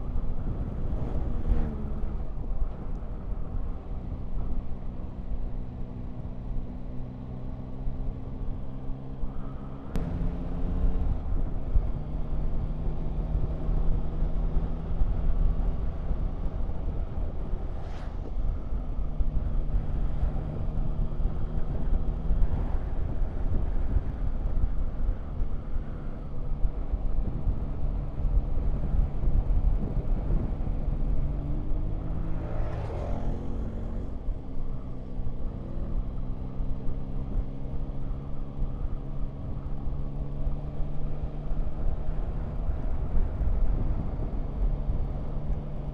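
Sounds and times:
low wind rumble: 0.0s - 45.9s
motorcycle engine running: 10.0s - 17.6s.

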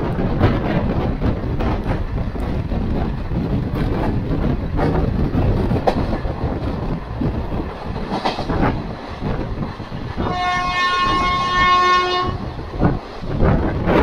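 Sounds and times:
wheels clacking over rail joints: 0.0s - 10.7s
train wheels rumbling on rails: 0.0s - 14.0s
train horn blast: 10.2s - 12.5s.

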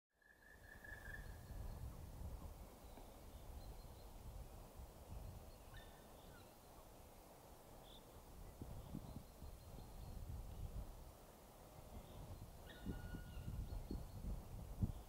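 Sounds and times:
distant bird calls: 0.2s - 2.0s, 2.6s - 4.6s, 5.2s - 8.2s, 11.3s - 15.0s.

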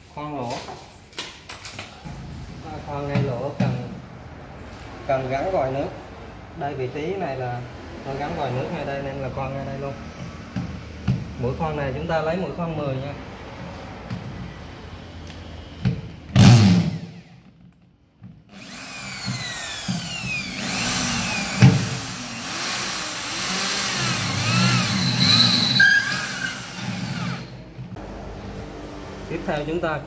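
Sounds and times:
electric drill squealing on metal: 22.2s - 27.6s.

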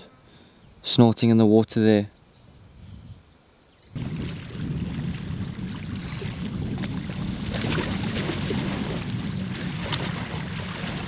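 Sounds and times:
wind buffeting microphone: 2.5s - 11.0s.

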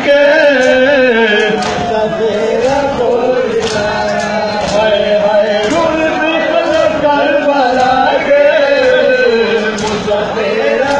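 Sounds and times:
men chanting a lament: 0.0s - 10.9s
hands slapping bare chests: 1.4s - 5.0s.

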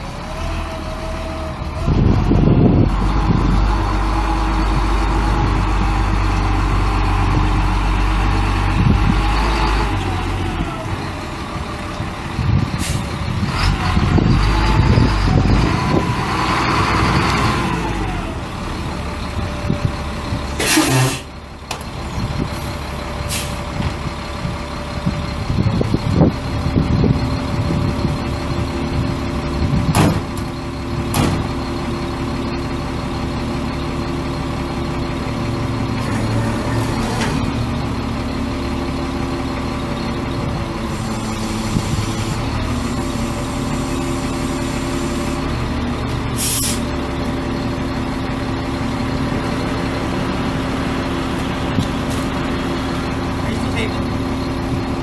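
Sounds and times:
diesel truck engine with turbo whine: 0.0s - 55.0s
air brakes hissing: 20.6s - 21.3s, 22.5s - 23.7s, 40.9s - 45.5s, 46.4s - 46.9s.

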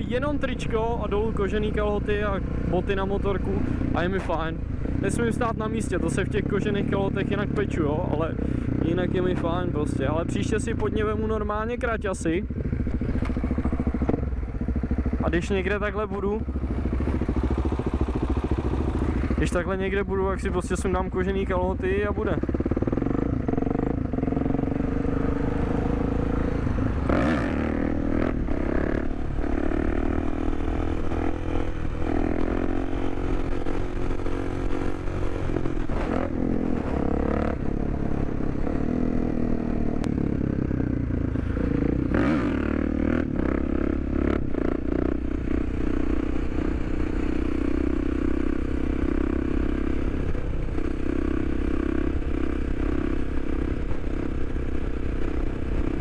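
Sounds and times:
motorcycle engine running: 0.0s - 56.0s.

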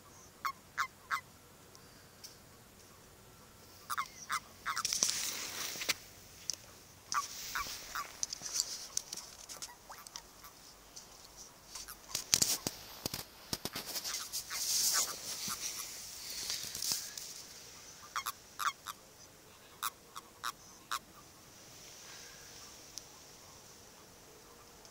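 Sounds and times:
toads croaking chirps: 0.0s - 1.3s, 3.8s - 5.2s, 6.8s - 10.6s, 11.7s - 12.7s, 13.6s - 21.4s
soft clicks and rustling: 4.8s - 17.6s.

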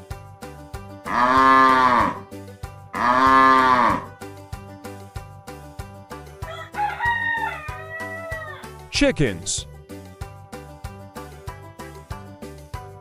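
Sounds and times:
background music with steady beat: 0.0s - 13.0s
cow mooing: 1.0s - 2.3s, 2.9s - 4.2s.

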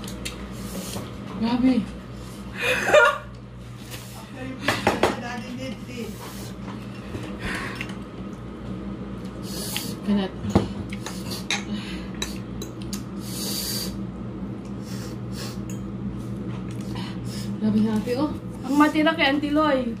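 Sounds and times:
short hissing breaths: 13.2s - 14.0s, 14.8s - 15.6s.

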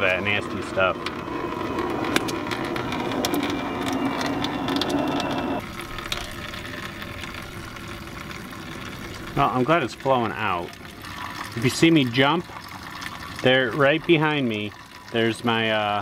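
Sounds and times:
fuel draining and splashing: 0.0s - 16.0s
small clicks and drips: 1.0s - 16.0s
loud rushing noise: 1.2s - 5.6s.

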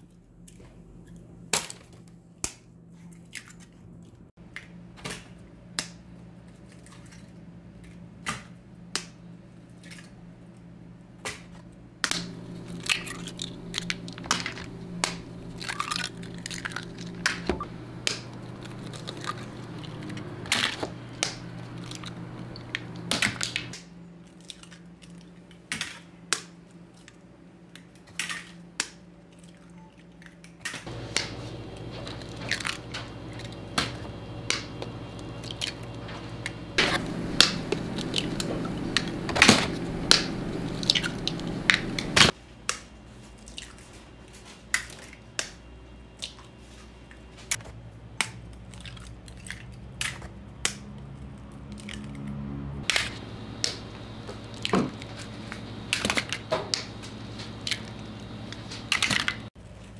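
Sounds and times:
low background hum: 0.0s - 42.4s, 45.0s - 59.9s
eggshells cracking: 12.1s - 23.7s.

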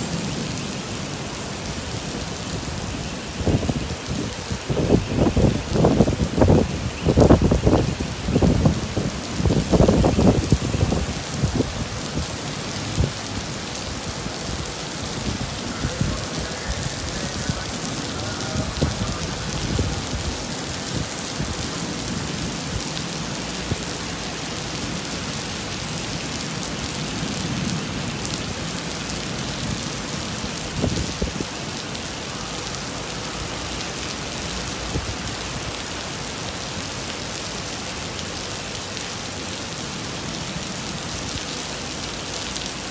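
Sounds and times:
torrential rain on pavement: 0.0s - 42.9s
low rumbling gusts: 2.5s - 24.0s.

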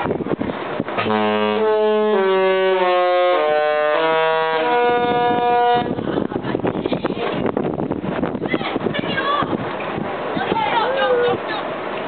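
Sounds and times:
ship horn playing a tune: 1.0s - 6.0s.

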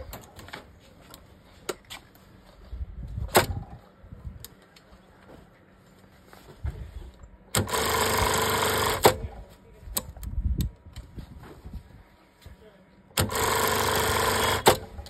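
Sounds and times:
sewing machine running: 7.6s - 9.2s, 13.2s - 14.9s.

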